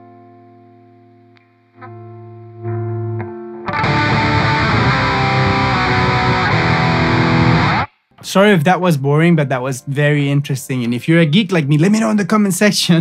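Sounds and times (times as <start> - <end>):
distorted electric guitar chord: 1.8 - 7.9.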